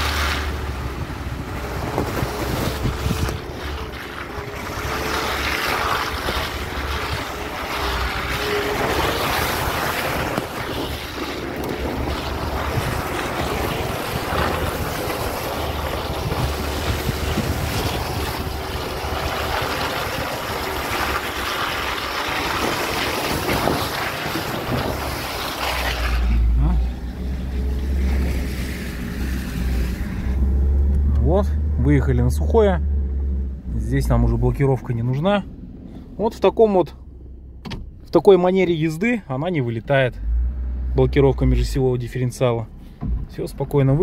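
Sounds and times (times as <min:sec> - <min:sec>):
car engine pulling slowly: 0:00.0 - 0:44.0.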